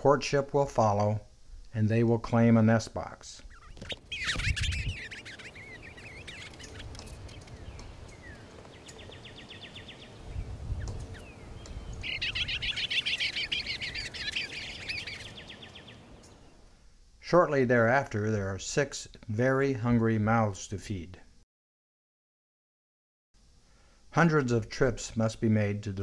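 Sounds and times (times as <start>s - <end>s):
songbirds warbling and trilling: 3.4s - 16.7s.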